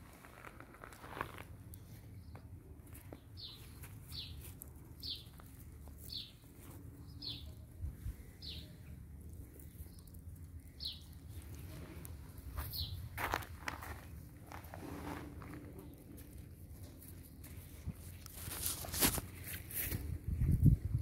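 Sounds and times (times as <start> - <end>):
bird chirping: 3.1 - 5.4, 6.0 - 7.6, 8.2 - 9.0, 9.6 - 11.4, 12.7 - 13.0.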